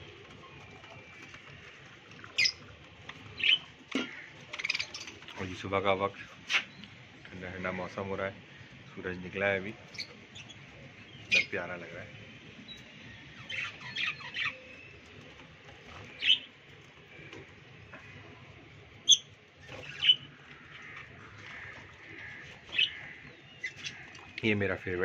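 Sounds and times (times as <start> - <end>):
faint bird chatter: 0.0 - 25.0
budgerigars chirping and squawking: 1.2 - 2.7, 3.3 - 6.8, 9.7 - 15.2, 15.8 - 16.5, 19.0 - 24.9.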